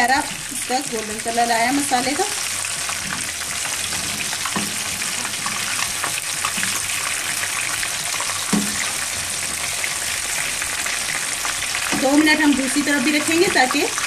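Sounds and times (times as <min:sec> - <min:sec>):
fish sizzling in frying pan: 0:00.0 - 0:14.0
spatula knocks: 0:04.0 - 0:05.6, 0:08.5 - 0:09.0.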